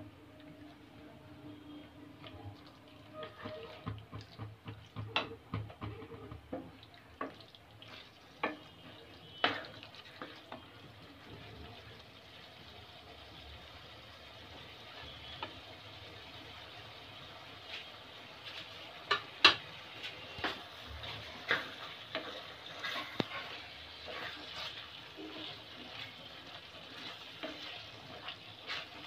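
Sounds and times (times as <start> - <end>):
curry sizzling in oil: 0.0 - 29.0
spatula scraping a metal pan: 20.1 - 29.0.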